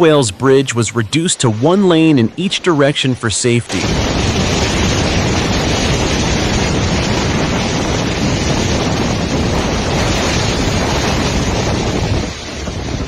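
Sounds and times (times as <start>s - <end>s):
storm waves breaking against seawall: 0.0s - 13.0s
wind buffeting microphone: 3.7s - 13.0s.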